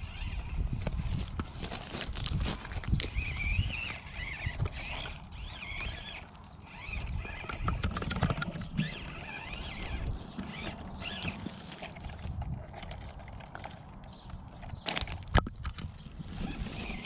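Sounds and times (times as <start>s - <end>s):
small electric motor whining: 0.0s - 1.6s, 2.6s - 13.8s, 16.1s - 17.0s.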